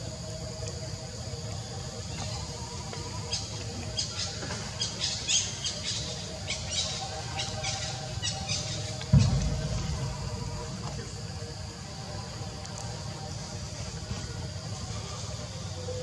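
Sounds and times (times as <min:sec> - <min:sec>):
steady low rush: 0:06.2 - 0:15.9
heavy thump: 0:09.1 - 0:11.5.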